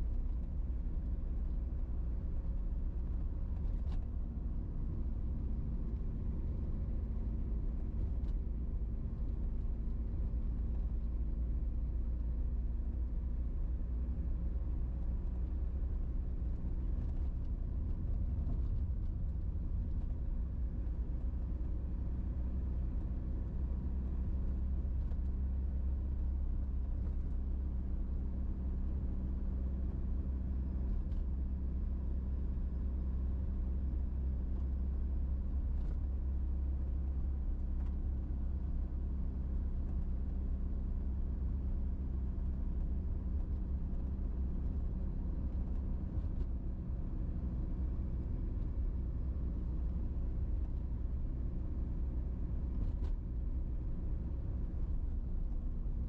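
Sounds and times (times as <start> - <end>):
car engine and tyres rumbling: 0.0 - 56.0.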